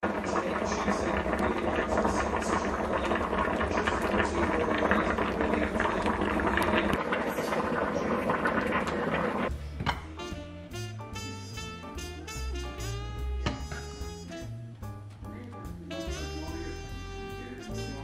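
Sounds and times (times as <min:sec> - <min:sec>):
jazz music: 0:09.4 - 0:18.0.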